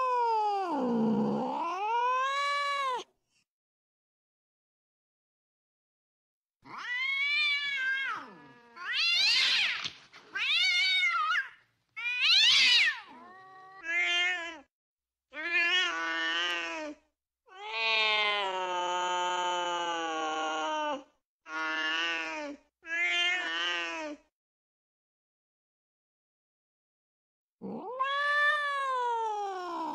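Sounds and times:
cats yowling: 6.7 - 14.7, 27.6 - 29.9.

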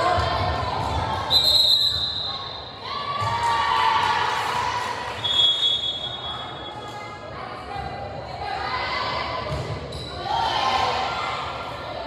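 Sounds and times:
spectators shouting and cheering: 2.2 - 5.4.

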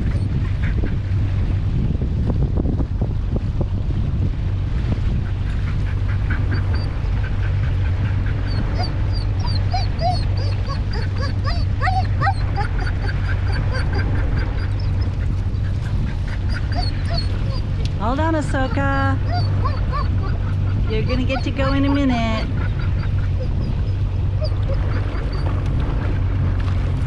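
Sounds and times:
boat motor humming: 0.0 - 27.0
sliding animal cries: 8.4 - 15.2, 16.0 - 17.9, 18.5 - 21.8
high squeaky animal calls: 16.3 - 17.7.

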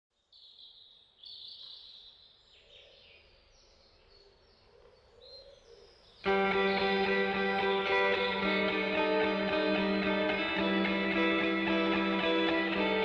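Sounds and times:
strummed electric guitar music: 6.2 - 13.0.

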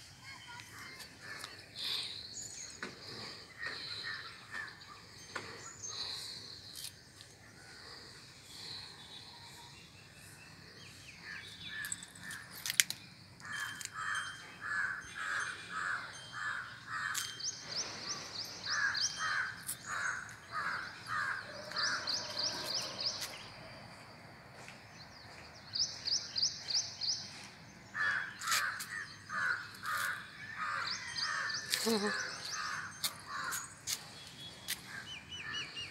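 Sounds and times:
crow cawing: 18.7 - 22.6, 28.0 - 33.6.

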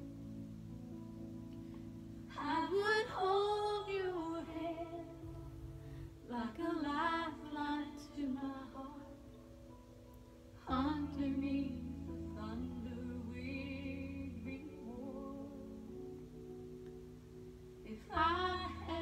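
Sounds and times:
instrumental backing music: 0.0 - 19.0
woman singing: 2.3 - 5.4, 6.3 - 9.3, 10.6 - 16.0, 17.9 - 19.0.

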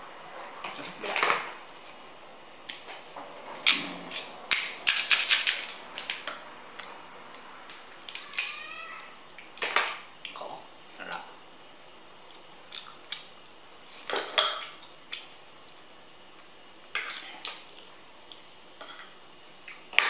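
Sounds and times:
crab shell cracking: 8.0 - 8.6.

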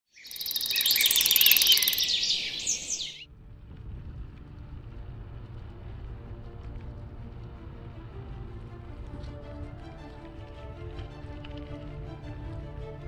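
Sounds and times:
birds chirping: 0.1 - 3.2
faint music: 1.1 - 13.0
low rumble: 2.3 - 11.9.

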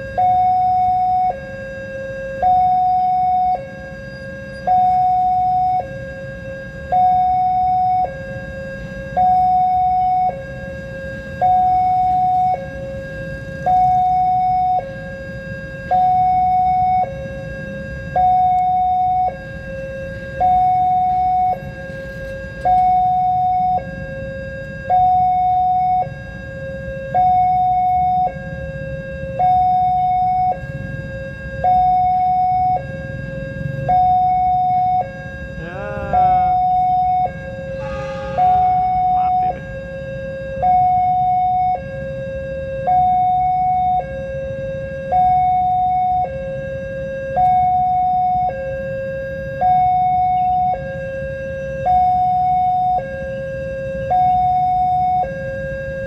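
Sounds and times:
two-tone level crossing alarm: 0.0 - 56.0
motorcycles idling rumble: 35.6 - 37.0.

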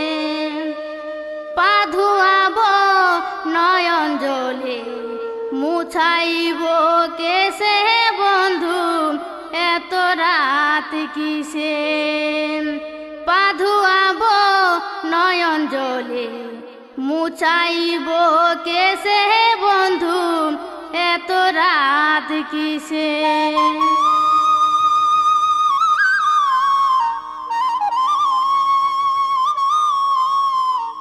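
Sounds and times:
folk song melody: 22.7 - 31.0.

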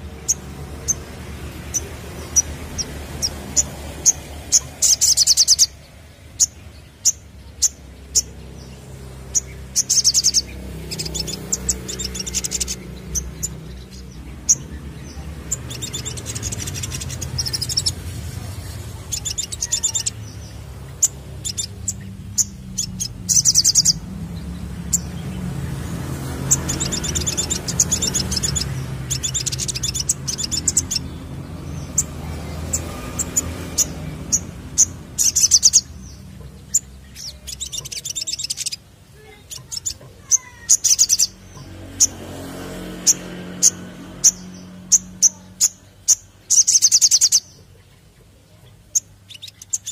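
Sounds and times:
bird chirping and trilling: 0.0 - 49.9.

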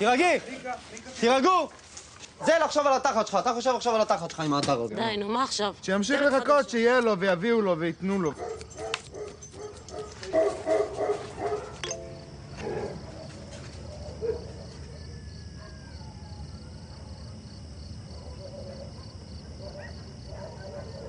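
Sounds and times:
dogs barking and yelping: 8.3 - 11.8, 12.5 - 17.5, 18.1 - 21.0.

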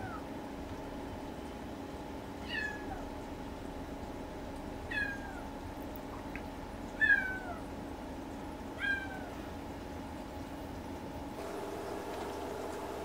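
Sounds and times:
kitten meowing: 2.4 - 3.0, 4.9 - 5.4.

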